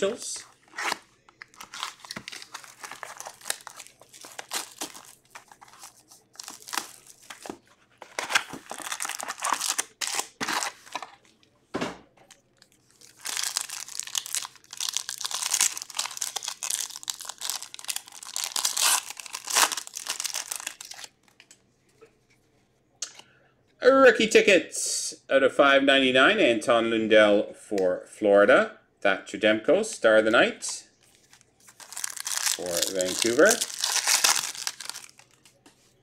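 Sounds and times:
card wrappers crinkling and tearing: 0.4 - 11.4, 12.3 - 21.4, 31.0 - 35.6.

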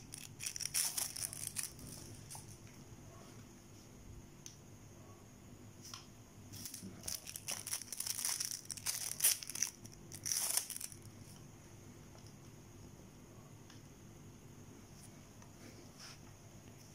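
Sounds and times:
plastic wrapper crinkling: 0.0 - 2.6, 6.6 - 11.1.

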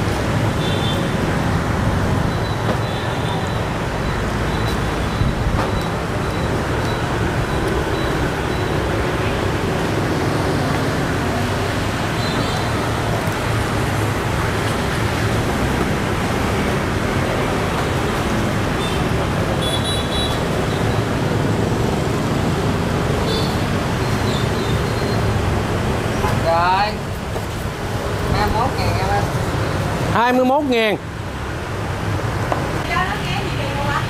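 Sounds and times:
street traffic: 0.0 - 34.0
short high-pitched beeps: 2.2 - 9.4.

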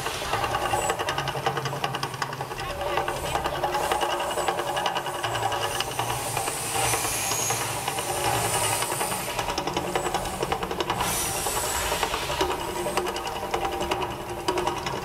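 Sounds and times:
fire jets hissing: 5.6 - 13.5.

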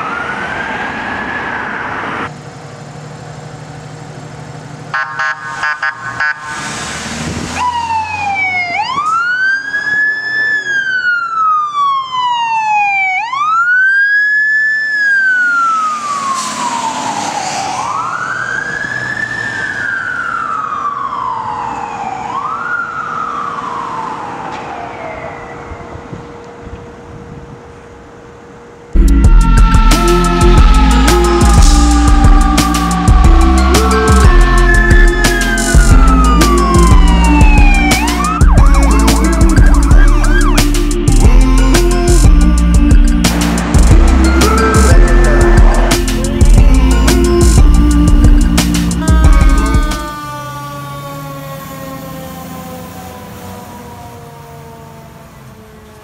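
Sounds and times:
fire engine siren wailing: 0.0 - 2.3, 4.9 - 27.4, 28.9 - 56.0.

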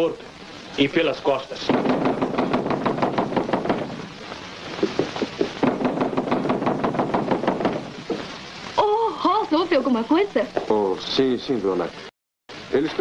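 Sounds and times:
rapid knocking on wooden door: 1.6 - 8.3.

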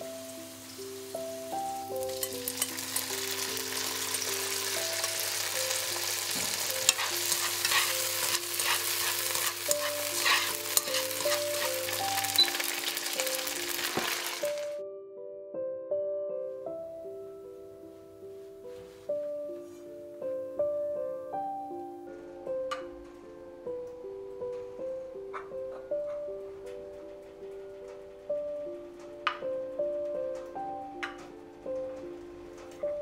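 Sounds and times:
food sizzling in hot oil: 0.0 - 14.8.

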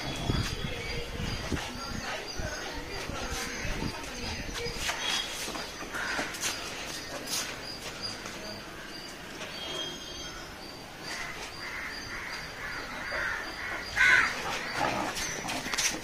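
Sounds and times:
faint high bird chirps: 7.1 - 11.3.

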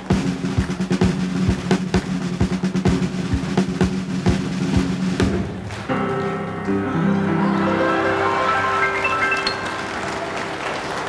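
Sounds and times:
steady drum beat: 0.0 - 5.6
sustained chord: 6.9 - 11.0.

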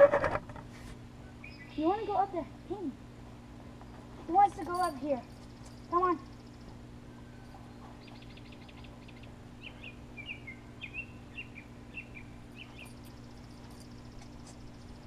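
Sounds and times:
steady low hum: 0.0 - 15.0
songbird trilling and chirping: 1.4 - 2.4, 5.3 - 15.0.

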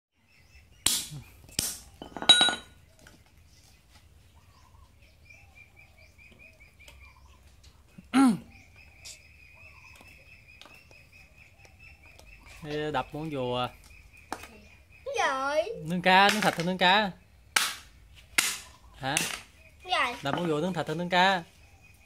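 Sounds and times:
hammer striking on concrete: 17.6 - 19.5.

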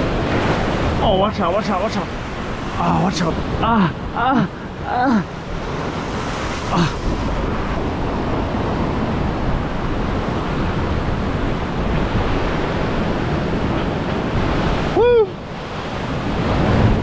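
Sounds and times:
surf breaking on rocks: 0.0 - 15.0
wind buffeting microphone: 0.0 - 17.0
person's short cry: 14.9 - 15.4.

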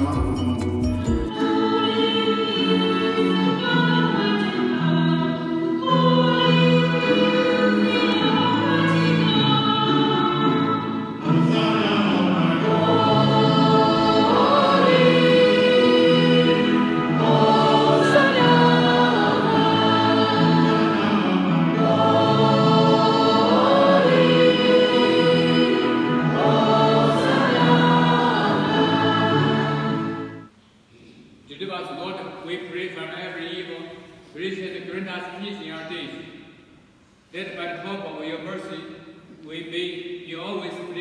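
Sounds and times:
congregation singing a hymn: 1.3 - 30.5.

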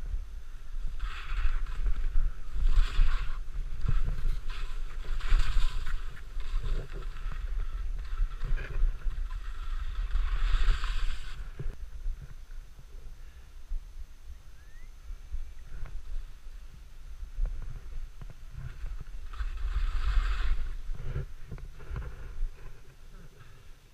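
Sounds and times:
skis scraping over snow: 0.0 - 12.4, 17.3 - 23.9
wind buffeting microphone: 0.0 - 23.9.

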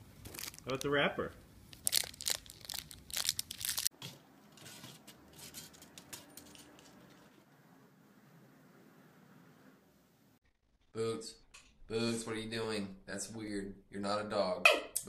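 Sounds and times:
plastic wrapper crinkling: 0.2 - 1.0, 1.7 - 3.9.

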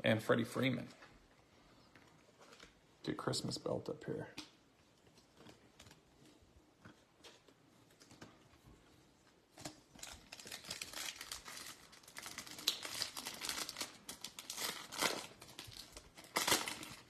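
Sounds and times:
foil wrapper crinkling and tearing: 9.6 - 17.0.

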